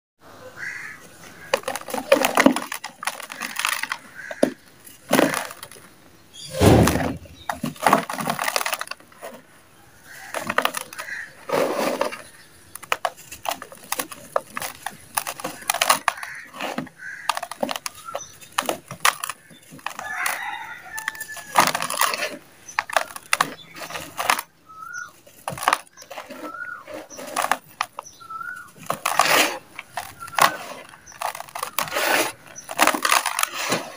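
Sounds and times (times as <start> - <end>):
hands crumbling dry dirt: 10.1 - 33.9.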